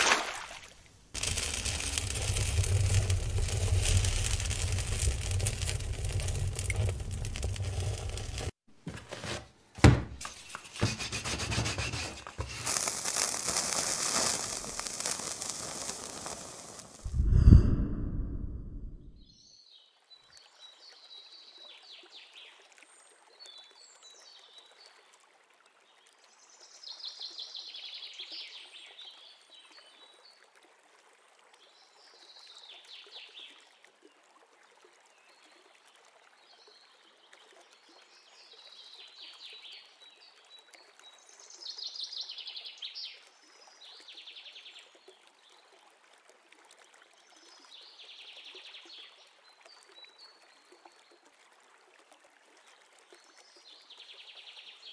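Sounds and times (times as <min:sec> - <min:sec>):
bird trills sliding down: 0:01.2 - 0:08.5, 0:10.2 - 0:17.3
faint steady hiss: 0:12.2 - 0:17.2.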